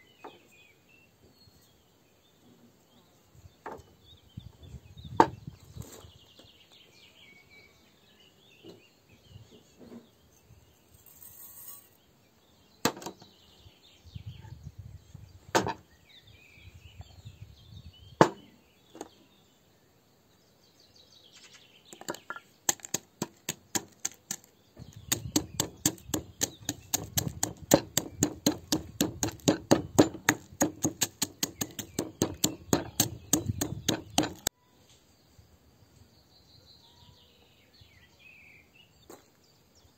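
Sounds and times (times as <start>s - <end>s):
knocks on wooden board: 15.6s - 15.8s, 18.2s - 18.4s, 22.0s - 24.5s, 25.1s - 34.5s
pestle pounding in ceramic mortar: 22.0s - 34.5s.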